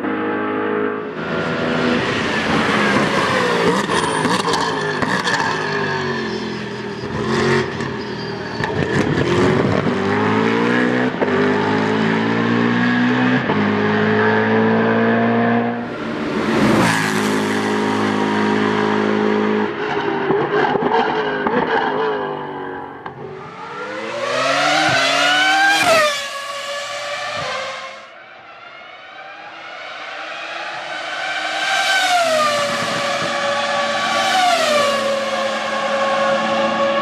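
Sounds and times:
loud rush of noise: 1.0s - 10.4s
race car engine accelerating: 23.2s - 37.0s.

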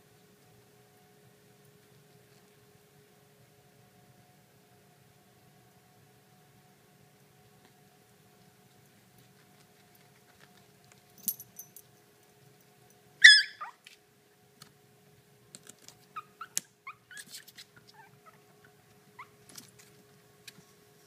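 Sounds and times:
puppies whimpering and yipping: 13.2s - 13.8s, 16.2s - 19.4s
puppy yelping: 13.2s - 13.8s, 16.1s - 19.4s
claws clicking and scratching: 15.5s - 16.1s.

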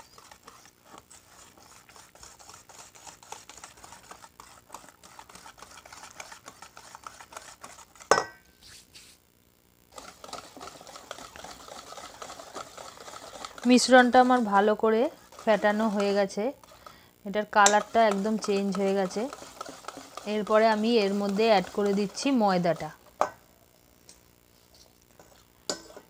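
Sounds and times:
whisk beating in a bowl: 0.0s - 8.2s, 9.9s - 23.3s
whisk clinking on bowl: 17.6s - 22.3s.

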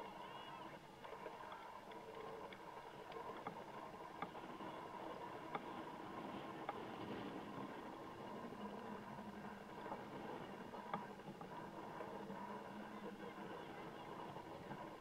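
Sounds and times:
soccer match background noise: 0.0s - 15.0s.

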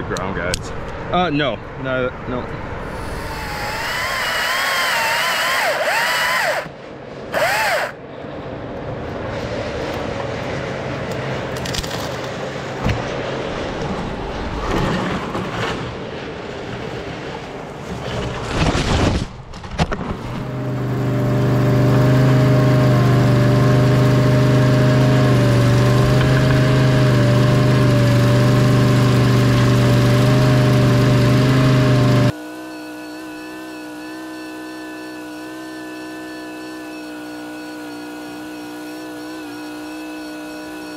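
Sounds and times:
hydraulic machine engine running: 2.8s - 8.0s, 20.3s - 40.9s.

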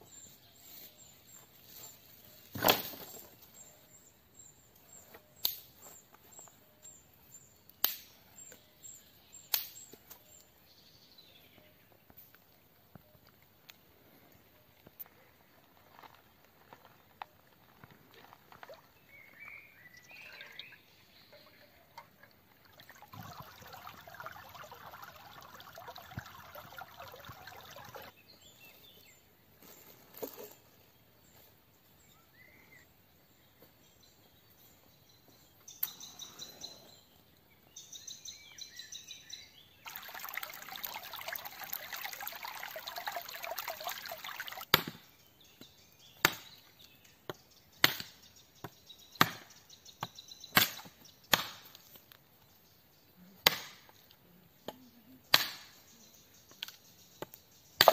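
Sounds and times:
water pouring and trickling: 18.0s - 19.1s, 19.9s - 28.1s, 39.8s - 44.7s.

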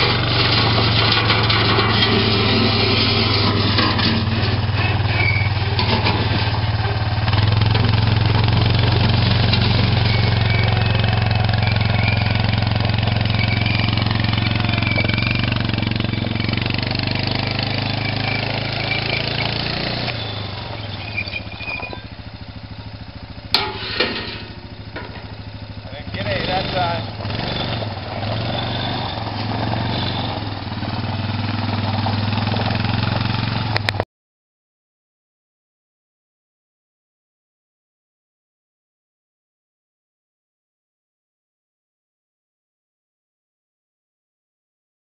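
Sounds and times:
atv engine running: 0.0s - 34.0s.

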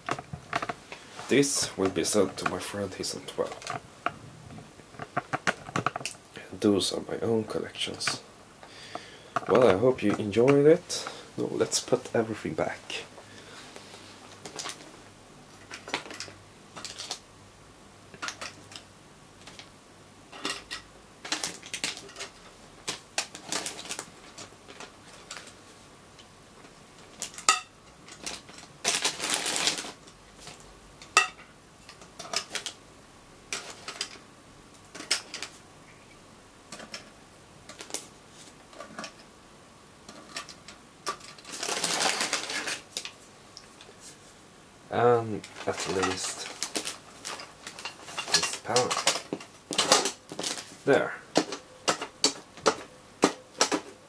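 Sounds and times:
metal parts clattering: 20.3s - 22.4s, 45.4s - 50.7s
metal parts clicking and clinking: 45.4s - 50.6s.

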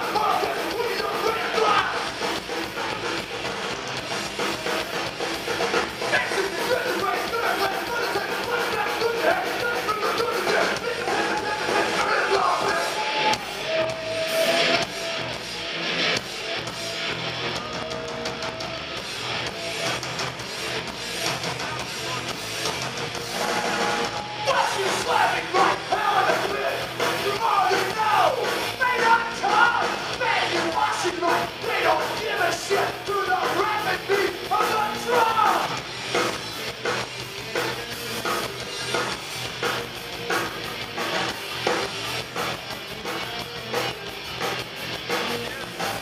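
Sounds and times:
shouted vocals: 0.0s - 2.1s, 6.1s - 14.8s, 23.5s - 35.8s
distorted electric guitars: 0.0s - 46.0s
drums: 0.0s - 46.0s.

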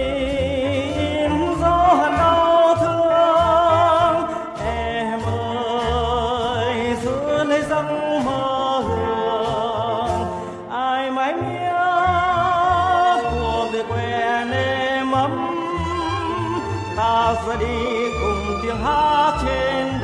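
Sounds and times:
low bass notes: 0.0s - 10.4s
instrumental accompaniment: 0.0s - 20.0s
man singing with vibrato: 0.0s - 20.0s.

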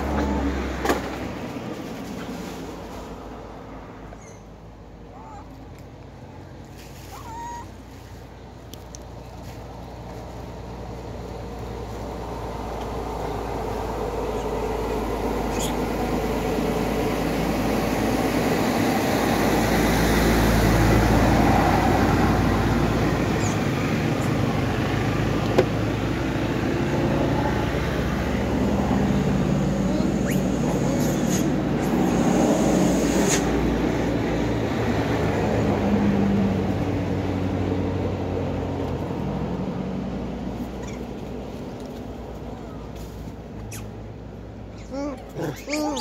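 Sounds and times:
traffic rumble: 0.0s - 46.0s.

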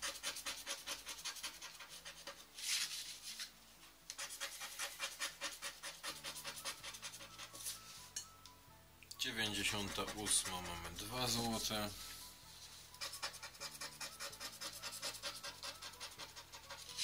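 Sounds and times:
scratch card being scratched: 0.0s - 3.4s, 4.1s - 7.8s, 9.7s - 11.6s, 12.9s - 17.0s.

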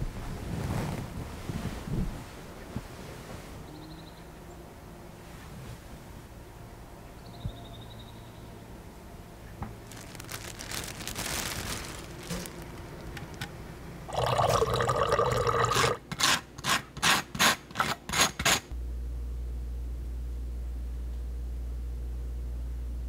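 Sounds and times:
steady low hum: 0.0s - 16.6s, 18.7s - 23.0s
water pouring into a glass: 14.1s - 16.0s.

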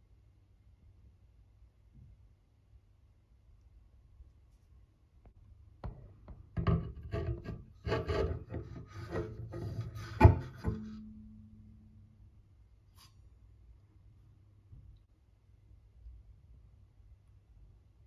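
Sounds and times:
low steady hum: 0.0s - 18.0s
hand scraping plastic turntable: 6.6s - 11.0s.

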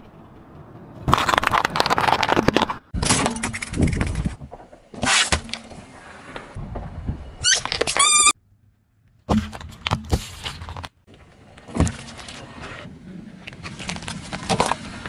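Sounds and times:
car tyre crushing objects: 1.0s - 6.0s.

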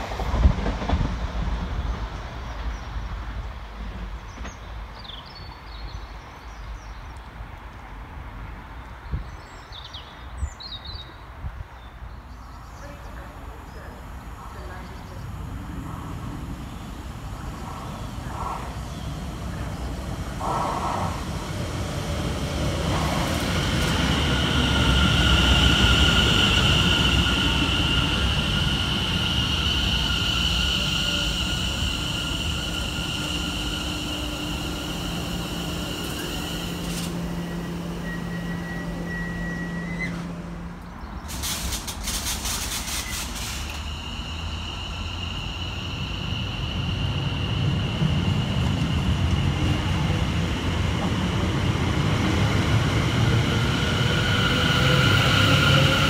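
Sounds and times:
train wheel rumble: 0.0s - 5.1s, 12.5s - 56.0s
train motor whining: 22.8s - 46.6s.

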